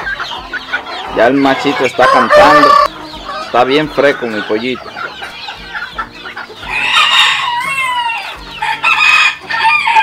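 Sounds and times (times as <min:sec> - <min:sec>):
cockerel crowing: 0:01.4 - 0:03.4, 0:06.7 - 0:10.0.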